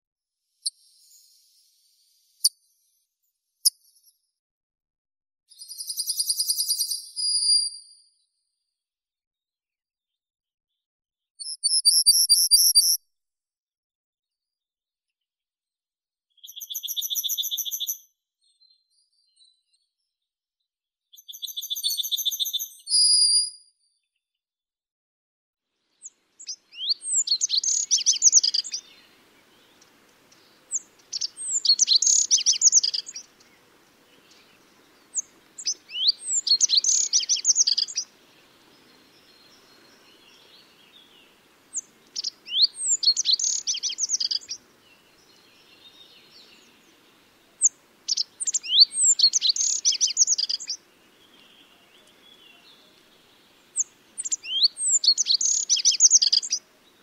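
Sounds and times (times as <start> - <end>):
bird singing high thin notes: 26.8 - 29.8, 30.4 - 33.6, 34.2 - 38.2, 38.9 - 56.6.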